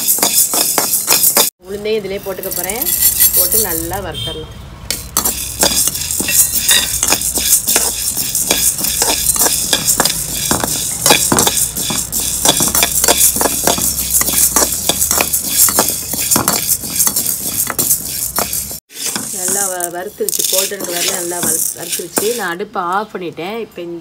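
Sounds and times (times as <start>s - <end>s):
lentils rattling: 5.1s - 22.5s.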